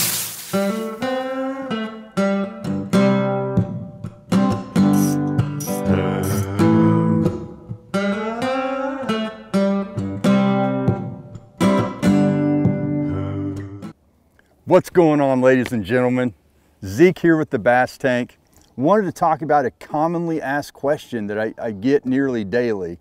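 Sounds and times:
acoustic guitar strumming: 0:00.0 - 0:13.9.

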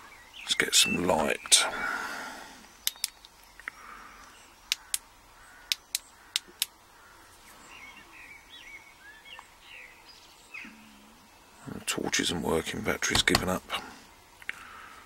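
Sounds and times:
faint bird chirps: 0:00.0 - 0:11.8
torch switch clicking: 0:02.8 - 0:03.2, 0:04.7 - 0:05.0.

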